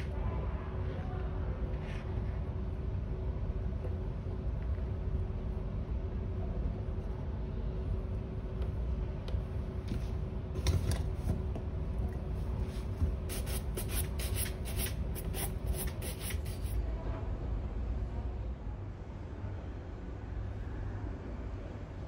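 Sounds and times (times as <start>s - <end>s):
steady low hum: 0.0s - 22.0s
shoe brush swishing on leather: 12.7s - 16.8s.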